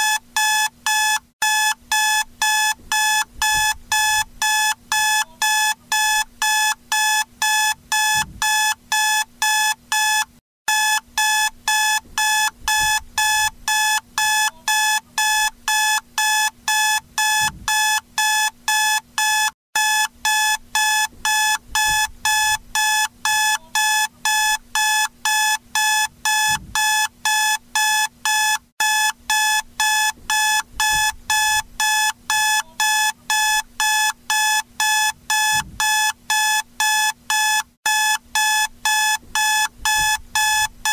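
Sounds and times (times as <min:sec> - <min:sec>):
alarm clock beeping: 0:00.0 - 0:40.9.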